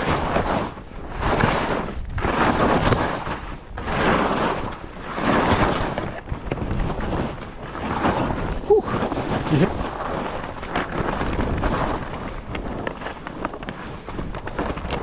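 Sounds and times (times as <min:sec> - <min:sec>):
skis scraping through snow: 0:00.0 - 0:15.0
wind buffeting microphone: 0:00.0 - 0:15.0.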